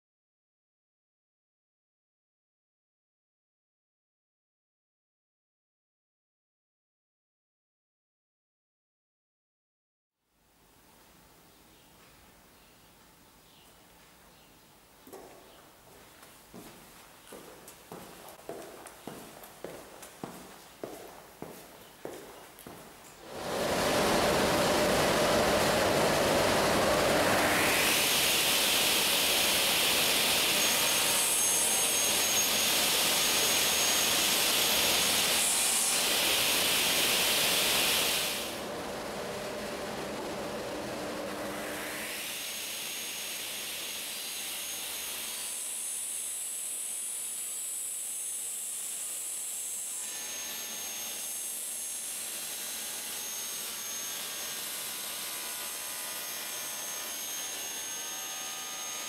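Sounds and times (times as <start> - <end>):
panel saw blade whining: 23.2 - 59.0.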